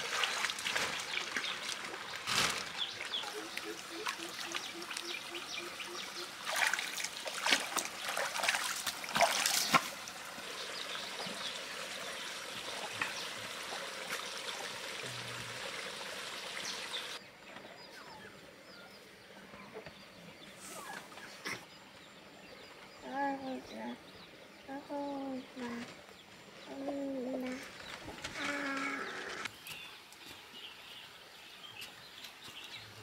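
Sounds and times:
splashing in shallow water: 0.0s - 5.1s, 6.4s - 10.4s
stream trickling: 0.0s - 17.2s.

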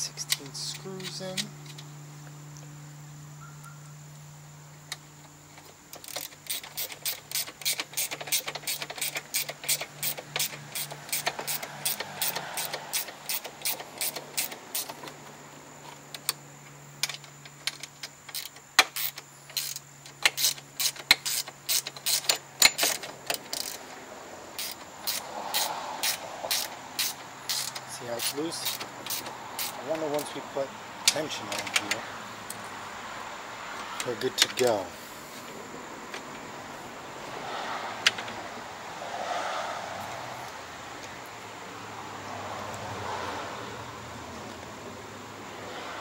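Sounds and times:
socket ratchet clicking: 6.0s - 15.0s, 17.0s - 23.9s, 24.5s - 29.8s.

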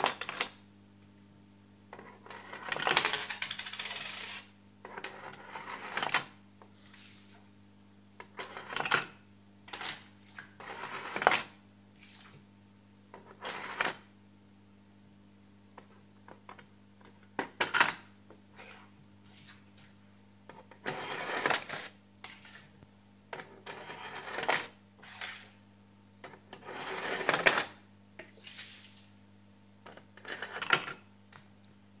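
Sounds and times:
coin clinking onto stack: 2.4s - 4.5s, 20.8s - 22.0s, 23.6s - 24.8s, 26.6s - 27.8s
coins rattling down a ramp: 2.6s - 4.5s, 20.8s - 22.0s.

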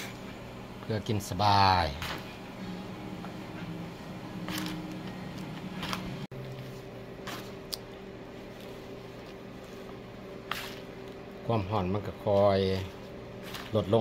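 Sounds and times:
steady low hum: 0.0s - 14.0s
rice rustling and squishing: 5.4s - 14.0s.

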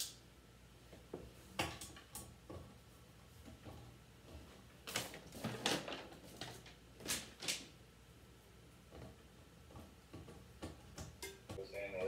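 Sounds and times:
paper sheets rustling: 4.8s - 7.7s.

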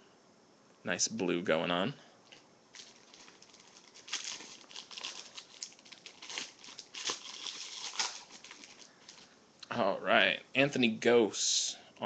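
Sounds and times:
foil wrapper crinkling and tearing: 2.7s - 9.4s.

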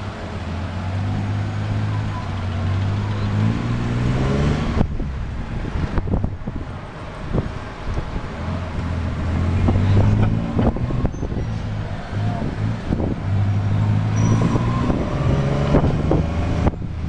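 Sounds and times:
motor rickshaw engine running: 0.0s - 3.8s
road and traffic noise: 0.0s - 17.0s.

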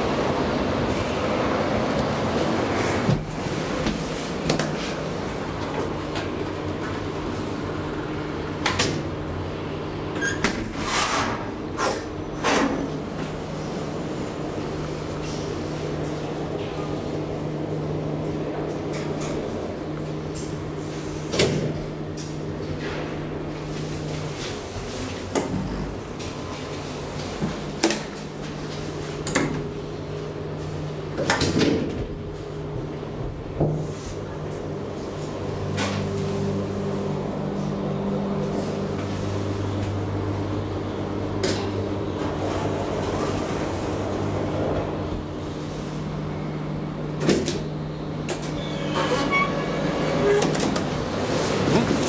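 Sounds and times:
elevator machinery hum: 0.0s - 10.6s, 11.5s - 52.0s
elevator machinery humming: 32.0s - 52.0s.

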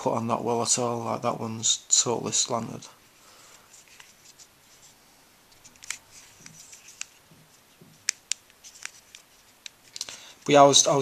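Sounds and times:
plastic puzzle clicking and scraping: 5.6s - 7.2s.

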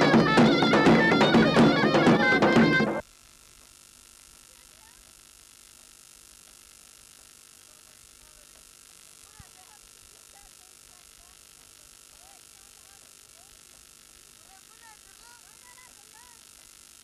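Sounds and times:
drum beating: 0.0s - 3.0s
folk dance music: 0.0s - 3.0s
reedy wind instrument: 0.0s - 3.0s
faint steady hum: 0.0s - 17.0s.

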